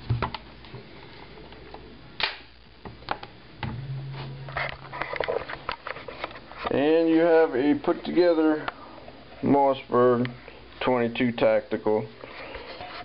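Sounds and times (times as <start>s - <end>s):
short low hum: 3.6s - 6.6s.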